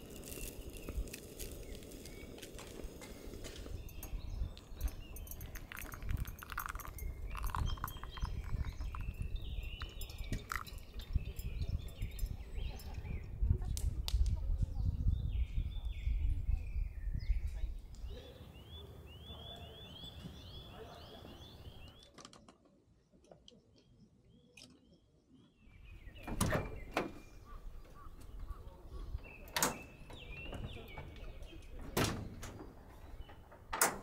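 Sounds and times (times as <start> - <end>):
bird chirping: 0.0 - 13.4, 14.8 - 22.2, 23.0 - 32.0
wind rumble: 0.0 - 18.1.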